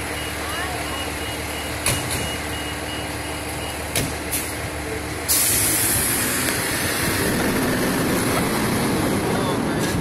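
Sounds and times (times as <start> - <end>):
fire engine idling: 0.0 - 5.8
air brake hiss: 5.3 - 6.0.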